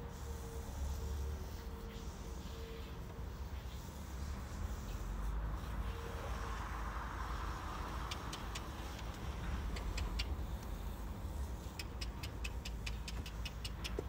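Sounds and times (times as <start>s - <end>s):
sharp high clicks: 8.1s - 10.8s, 11.7s - 14.0s.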